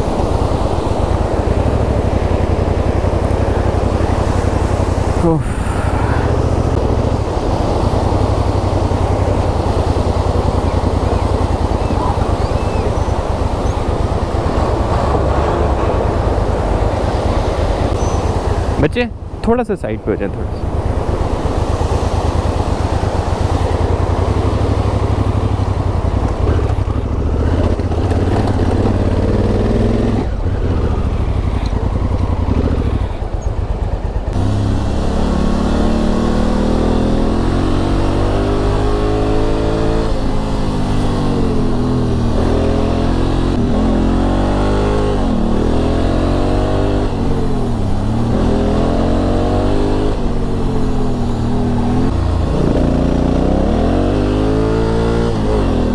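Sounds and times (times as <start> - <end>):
wind and road noise: 0.0 - 55.9
motorcycle engine revving: 20.5 - 55.9.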